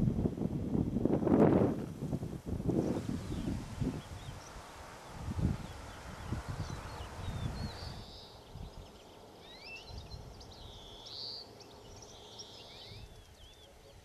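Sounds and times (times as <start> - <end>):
wind gusts on microphone: 0.0 - 11.0
small birds singing: 2.9 - 14.0.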